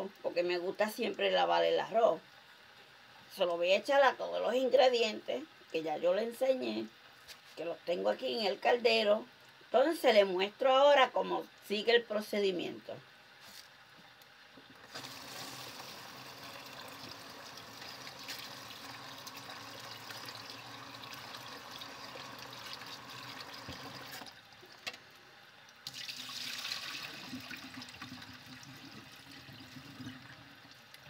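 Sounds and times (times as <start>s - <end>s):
tap water running into bowl: 14.7s - 24.9s, 25.8s - 31.0s.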